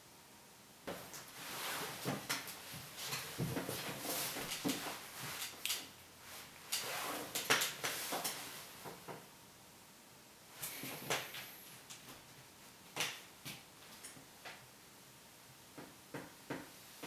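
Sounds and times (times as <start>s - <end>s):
clothing rustling: 0.9s - 8.9s.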